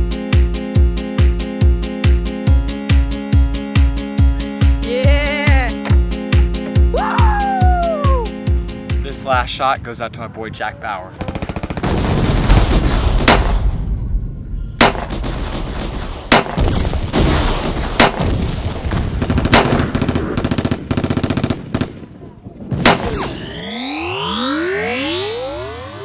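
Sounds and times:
gunfire bursts and bangs: 11.2 - 13.8, 14.8 - 22.1, 22.7 - 23.3
rising electronic whoosh: 23.0 - 26.0.

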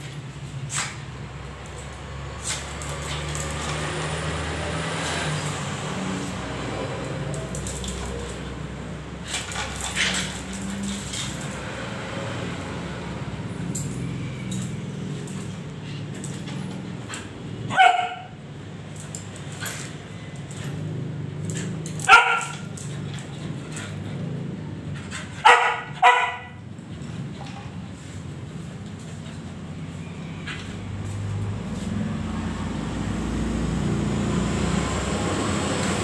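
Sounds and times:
dog barking: 17.7 - 18.4, 22.0 - 22.7, 25.4 - 26.6.

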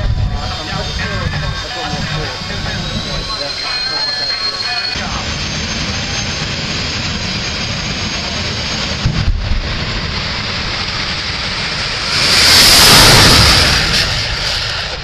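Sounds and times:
sharp low engine blips: 9.1 - 15.0.

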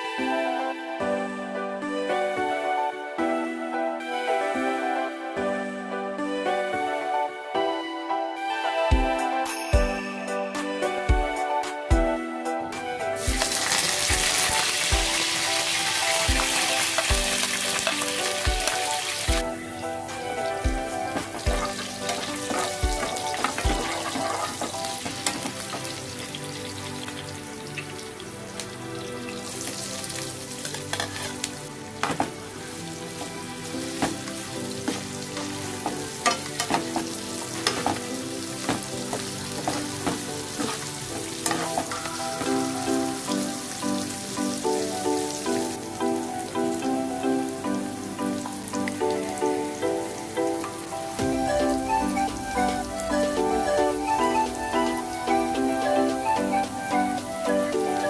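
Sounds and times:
light background music: 0.0 - 58.0
oil sizzling in frying pan: 13.1 - 58.0
spatula scraping and tapping pan: 30.6 - 32.3, 34.0 - 42.6.

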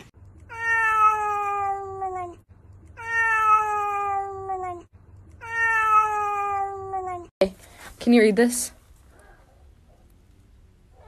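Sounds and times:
cat meowing: 0.5 - 2.4, 3.0 - 7.3.

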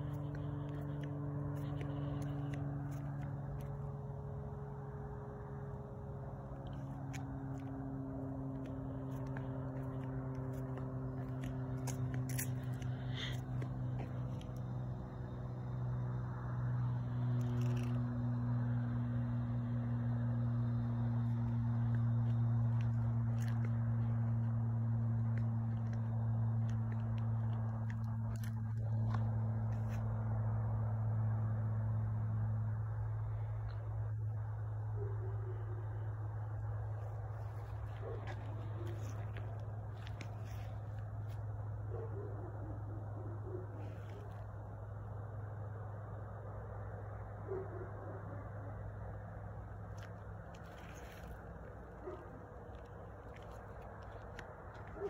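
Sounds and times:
light crunches and clicks: 0.0 - 4.0, 6.3 - 14.8, 17.2 - 18.4, 20.8 - 30.2, 36.9 - 41.5, 49.8 - 55.0
low mechanical hum: 0.0 - 55.0.

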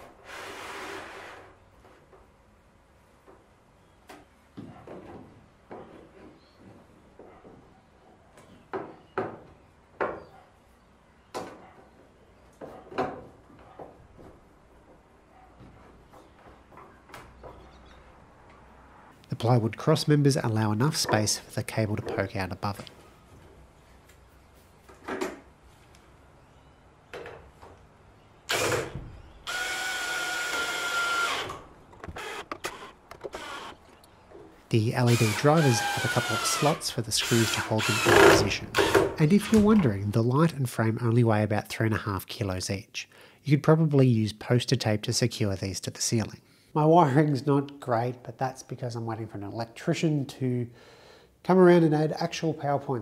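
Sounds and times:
wooden knocks and clunks: 4.1 - 7.7, 8.4 - 10.4, 11.3 - 17.8
cordless drill driving screw: 28.5 - 33.8, 35.1 - 39.7.

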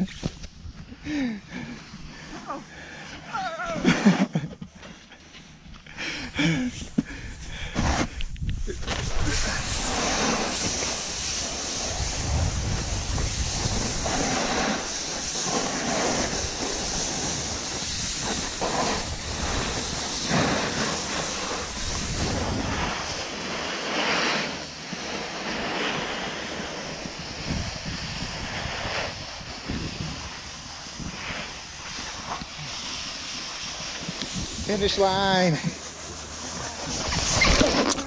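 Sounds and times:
snowboard scraping over snow: 0.0 - 5.7, 6.3 - 38.0
wind on microphone: 7.1 - 23.3, 26.2 - 35.4.

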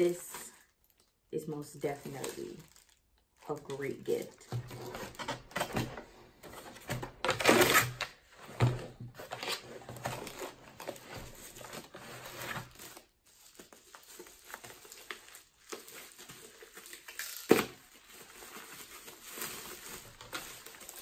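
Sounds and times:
packaging rustling and crinkling: 1.9 - 21.0.

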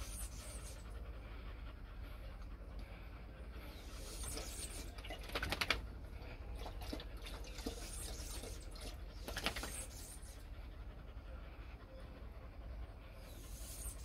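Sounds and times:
dog lapping water from metal bowl: 6.6 - 9.6.

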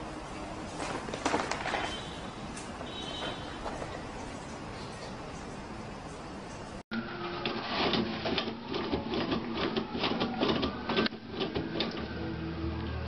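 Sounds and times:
paper rustling: 0.6 - 3.9.

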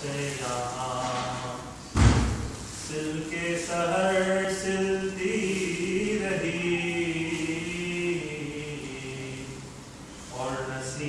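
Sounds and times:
man chanting verse: 10.3 - 11.0.

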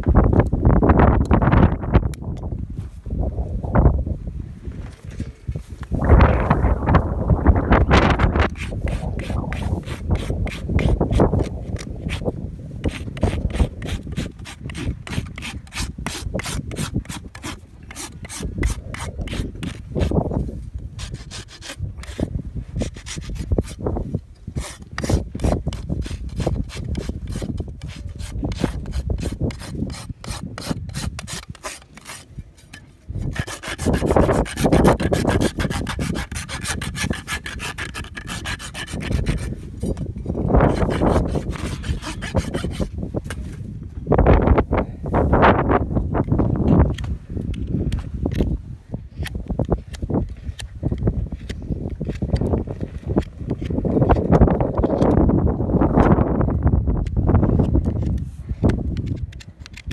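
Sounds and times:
rasp scraping hoof: 8.1 - 20.3, 21.0 - 23.8, 24.6 - 43.6.

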